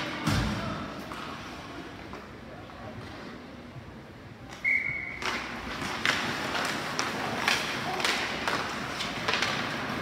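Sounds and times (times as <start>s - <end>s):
stick and puck clacks: 4.5s - 10.0s
skates scraping on ice: 5.2s - 10.0s.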